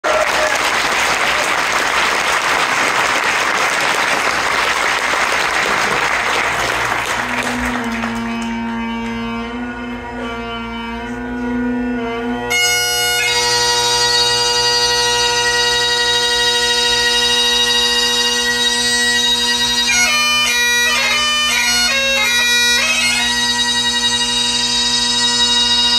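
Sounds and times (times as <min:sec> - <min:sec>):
audience applause: 0:00.0 - 0:08.6
bagpipe drones: 0:05.4 - 0:25.9
bagpipe chanter: 0:05.8 - 0:25.9.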